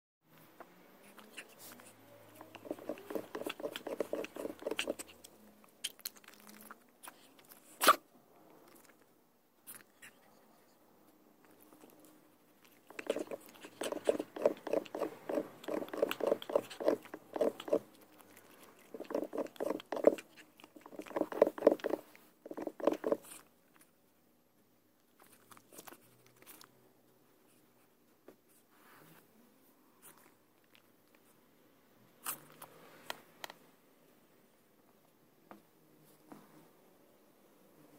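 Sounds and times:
dog rhythmic mouth noises: 1.1 - 7.3, 12.6 - 23.4.

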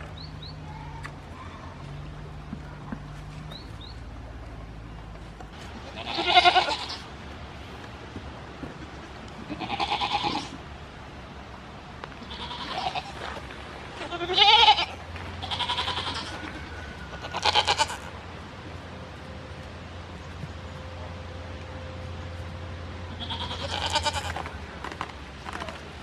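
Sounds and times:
goat bleating: 5.8 - 7.1, 9.5 - 10.6, 12.2 - 13.2, 14.0 - 16.6, 17.2 - 18.1, 23.1 - 24.5.

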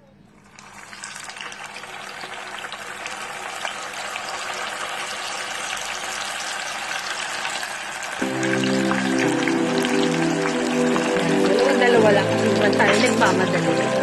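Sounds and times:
oil sizzling and crackling: 0.4 - 14.0
music: 8.2 - 14.0.

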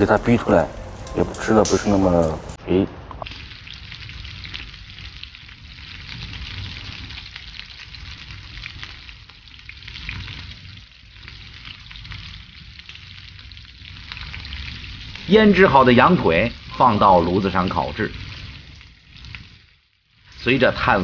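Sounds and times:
fat crackling on coals: 0.0 - 2.6, 3.2 - 21.0
meat sizzling on a grill: 0.0 - 2.6, 3.2 - 21.0.

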